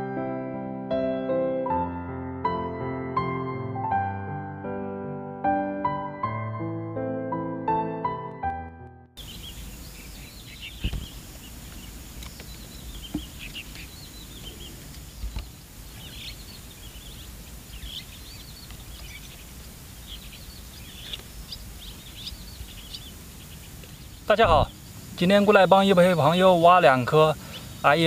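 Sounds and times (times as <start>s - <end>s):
small birds chirping: 9.2s - 28.0s.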